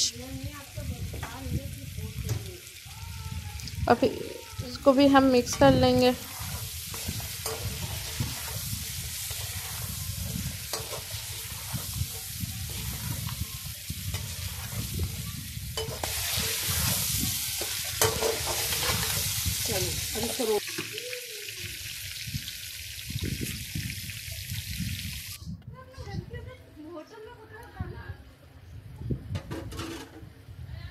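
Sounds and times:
meat sizzling in oil: 0.0 - 25.4
metal spatula scraping pan: 4.6 - 19.6, 29.5 - 30.2.

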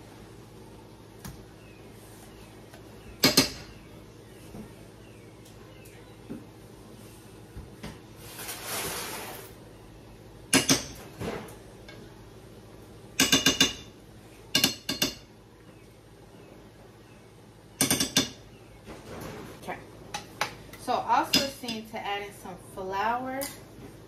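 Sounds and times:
scratchy scrape: 8.2 - 9.6.

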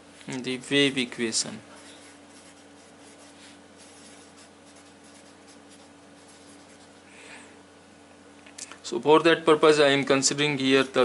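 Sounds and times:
marker scratching on paper: 1.7 - 7.0.

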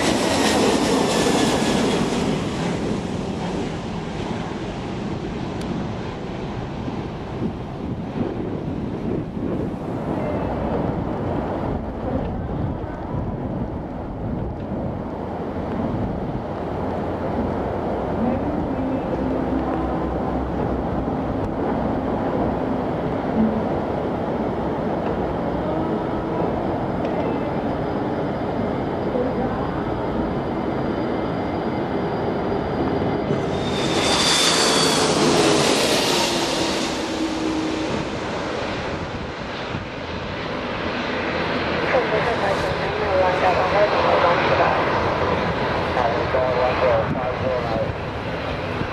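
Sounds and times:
jet aircraft landing: 0.0 - 48.9
wind buffeting microphone: 0.0 - 48.9
high whistle: 33.3 - 38.0.

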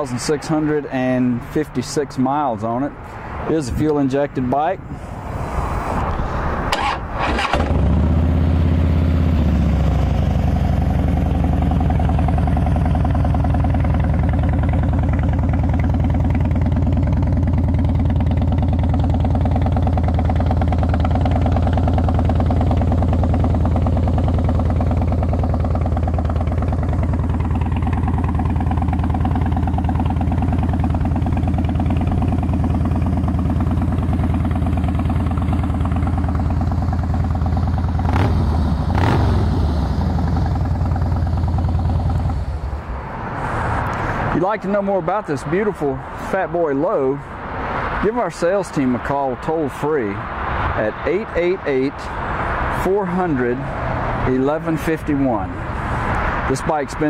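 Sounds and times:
motorcycle engine starting and idling: 6.7 - 42.9.

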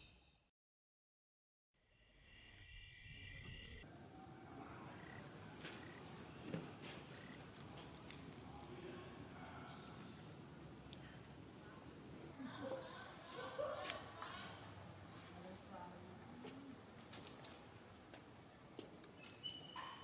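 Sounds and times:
high-pitched insect chorus: 3.0 - 12.3.

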